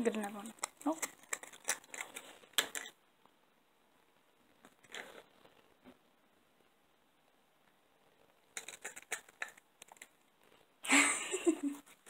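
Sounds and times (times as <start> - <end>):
cat crunching crackly bites: 0.5 - 3.0, 8.5 - 10.2.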